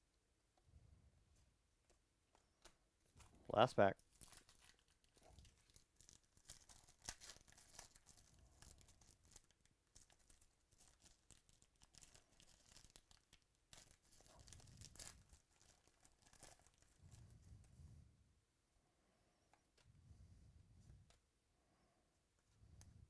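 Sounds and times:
foil wrapper crinkling: 4.0 - 17.2.

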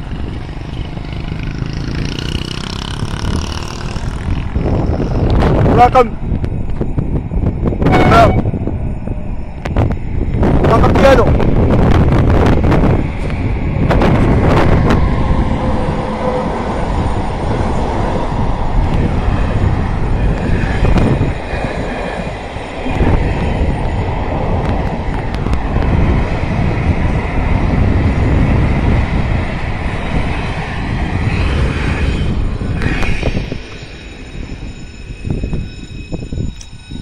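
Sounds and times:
high whine of passing train: 0.0 - 37.0
train wheels running over rails: 8.7 - 37.0.

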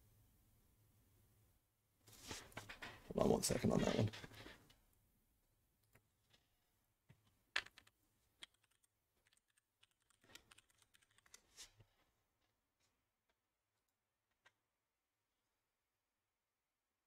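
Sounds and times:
keyboard typing: 7.6 - 11.5.

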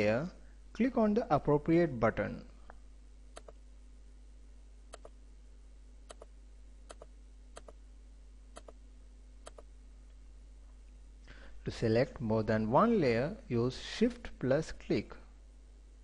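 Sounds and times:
computer mouse button clicking: 3.4 - 3.6, 4.9 - 5.1.

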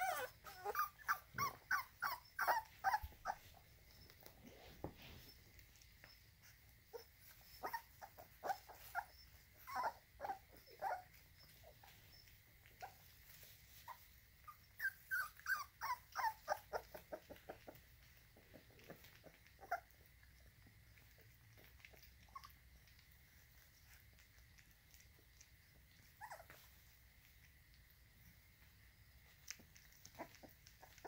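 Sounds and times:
puppies whimpering: 0.0 - 24.6, 25.9 - 27.0, 29.9 - 31.0.

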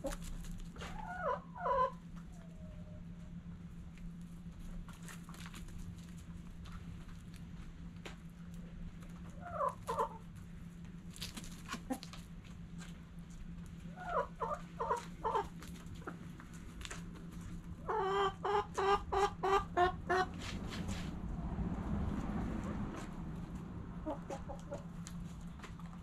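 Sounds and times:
hens clucking: 0.0 - 3.4, 9.0 - 10.6, 11.5 - 13.0, 13.6 - 21.1, 22.6 - 26.0
steady low hum: 0.0 - 26.0.

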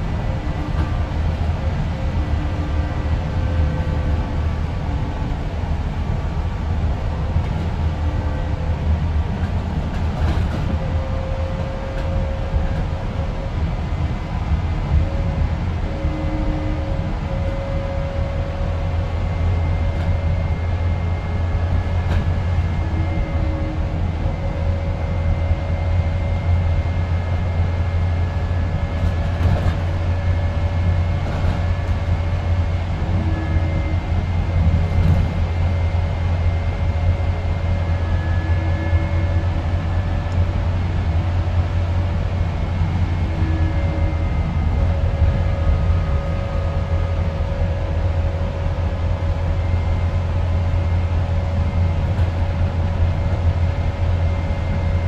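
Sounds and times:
bus interior drone: 0.0 - 55.0.

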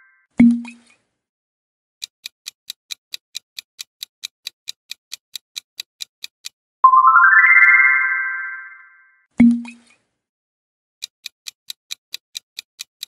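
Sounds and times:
clock ticking: 2.0 - 6.6, 11.0 - 13.0
rising chime: 6.9 - 9.1.

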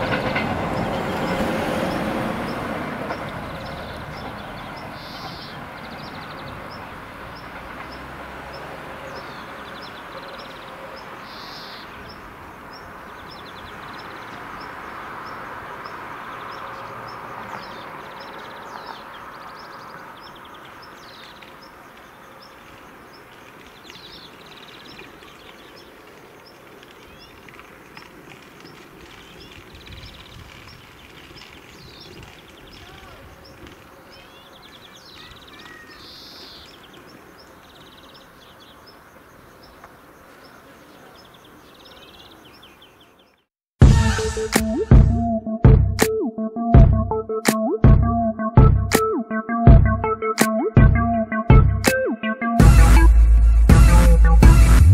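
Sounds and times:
bird calls: 0.0 - 27.8, 28.6 - 43.5.

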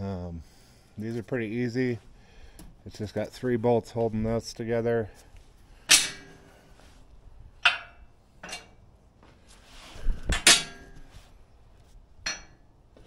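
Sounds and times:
steel parts clanking: 5.8 - 6.4, 7.6 - 8.8, 10.3 - 11.0.

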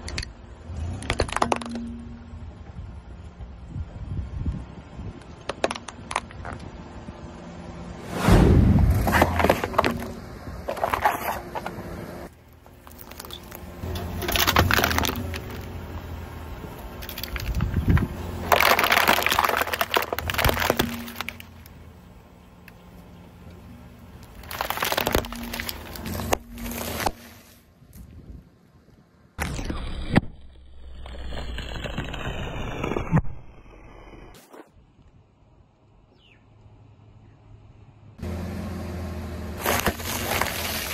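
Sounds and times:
tyre crushing drink can: 12.9 - 15.7, 17.0 - 21.5
crinkling packaging crushed: 14.2 - 15.7, 17.0 - 21.7, 24.2 - 27.2, 39.6 - 40.9.

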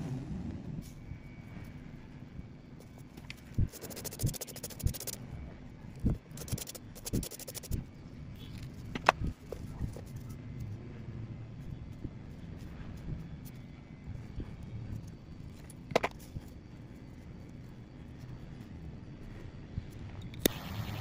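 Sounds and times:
low steady hum: 0.0 - 21.0
scratchy rustling: 3.7 - 5.2, 6.4 - 7.8.

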